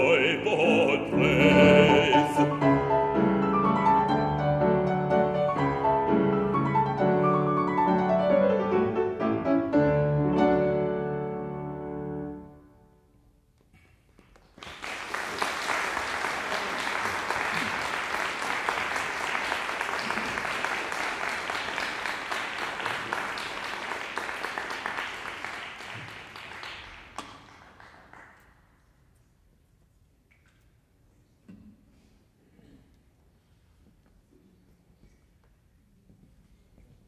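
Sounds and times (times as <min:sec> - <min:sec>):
audience applauding: 0:14.3 - 0:28.5.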